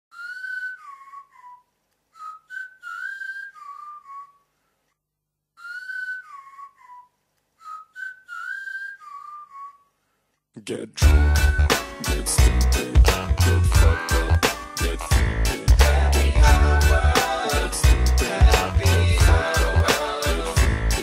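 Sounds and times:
person whistling a tune: 0.1 - 4.5, 5.6 - 10.0, 11.0 - 15.7.

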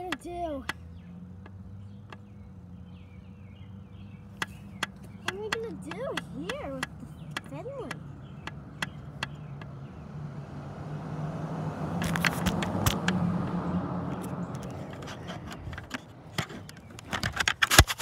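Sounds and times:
car engine passing: 0.3 - 17.4
sharp clicks: 12.0 - 18.0.

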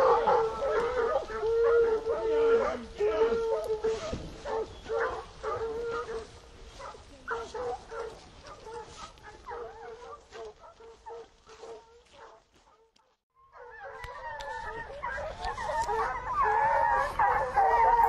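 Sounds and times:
hounds baying and yelping: 0.0 - 18.0.

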